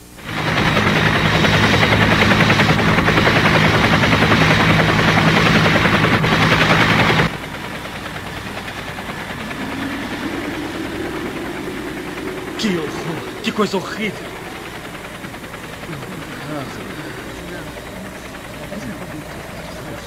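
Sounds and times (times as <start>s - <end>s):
helicopter rotor chopping: 0.0s - 20.0s
low hum: 0.0s - 20.0s.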